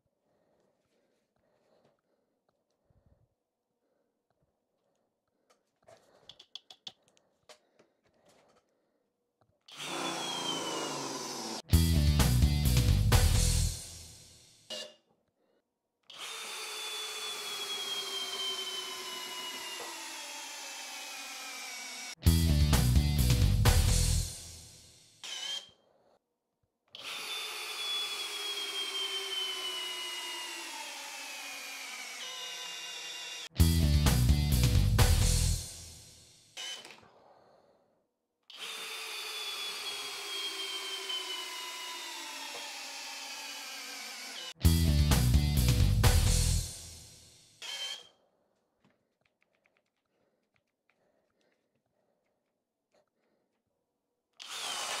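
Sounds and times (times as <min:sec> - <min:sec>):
drill boring through wood: 0:09.7 - 0:11.7, 0:16.1 - 0:22.2, 0:25.2 - 0:25.8, 0:27.0 - 0:33.6, 0:36.6 - 0:37.0, 0:38.5 - 0:44.6, 0:47.6 - 0:48.1, 0:54.4 - 0:55.0.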